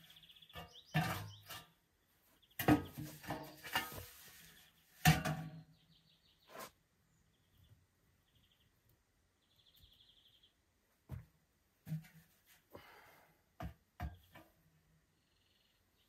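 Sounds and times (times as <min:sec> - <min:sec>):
faint bird chirps: 0:05.7 - 0:10.6, 0:15.1 - 0:16.0.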